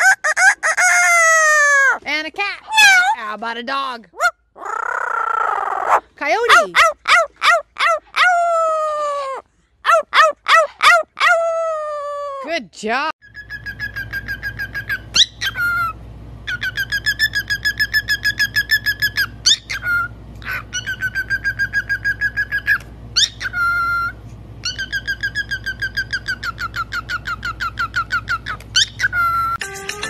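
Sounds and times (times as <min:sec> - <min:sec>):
cockatiel chirping rapidly: 0:13.2 - 0:29.6.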